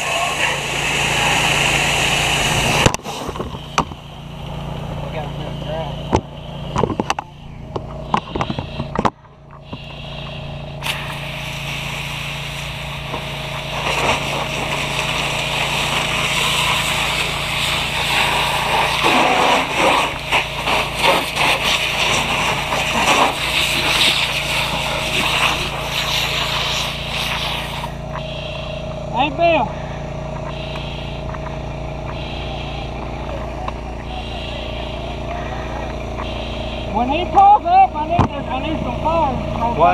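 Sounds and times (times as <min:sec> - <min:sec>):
water spray hissing: 0:00.0 - 0:06.8, 0:09.6 - 0:37.5
engine droning: 0:00.0 - 0:39.9
fire crackling and popping: 0:06.1 - 0:28.3.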